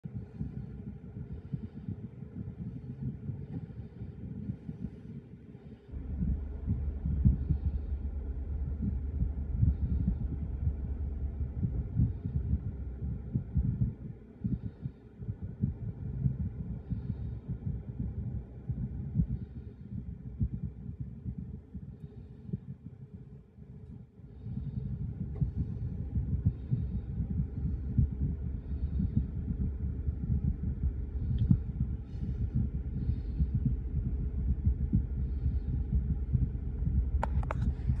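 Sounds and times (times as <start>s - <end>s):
steady low hum: 0.0s - 38.0s
freight train rumbling and thumping: 5.9s - 21.8s, 24.4s - 38.0s.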